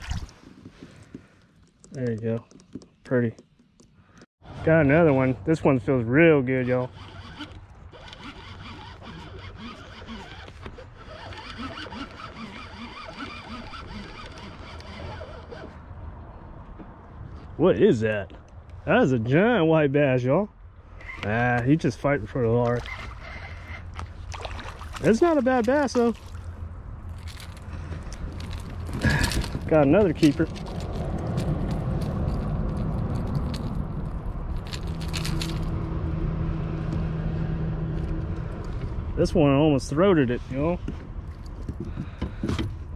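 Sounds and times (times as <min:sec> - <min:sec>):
fishing reel cranking: 0:06.6 - 0:15.7.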